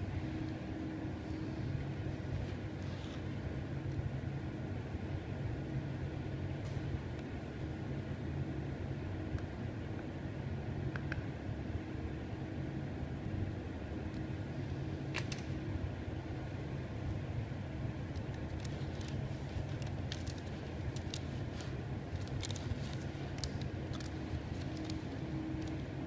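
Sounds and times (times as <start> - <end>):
low machine hum: 0.0 - 26.0
plastic film crackling: 18.1 - 26.0.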